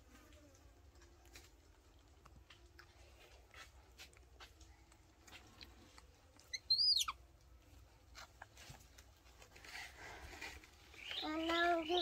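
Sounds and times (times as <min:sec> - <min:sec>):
high-pitched animal squeak: 0:06.5 - 0:07.2.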